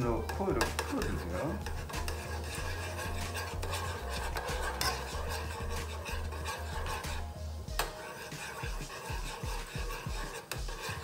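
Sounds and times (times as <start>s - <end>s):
background music with bass pulse: 0.0s - 8.0s
metal spoon scraping a pot: 0.1s - 11.0s.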